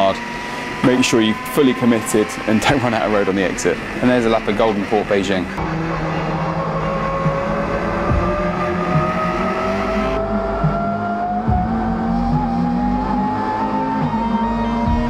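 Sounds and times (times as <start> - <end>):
car engine revving from cockpit: 0.0 - 15.0.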